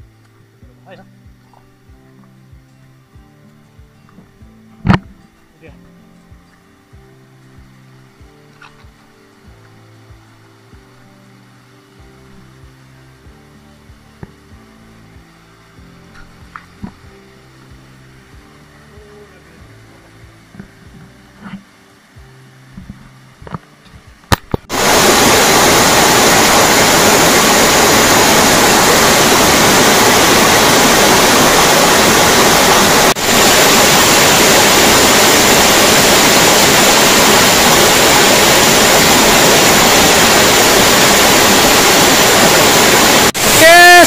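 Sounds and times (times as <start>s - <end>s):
waterfall rushing: 24.6s - 44.0s.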